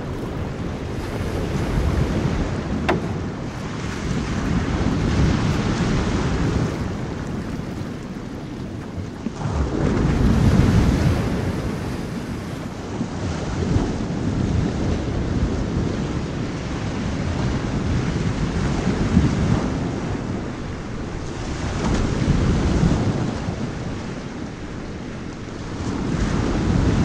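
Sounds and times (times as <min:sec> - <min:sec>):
ocean waves rushing: 0:00.0 - 0:15.8.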